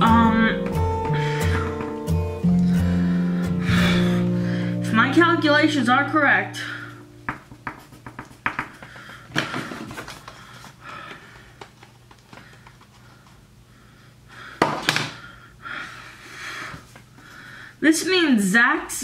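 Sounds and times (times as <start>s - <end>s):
low steady hum: 0.0s - 14.5s.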